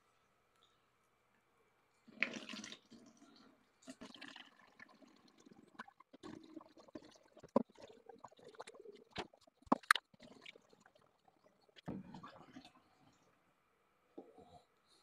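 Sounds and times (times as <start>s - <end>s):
water pouring into a tank: 2.1s - 12.8s.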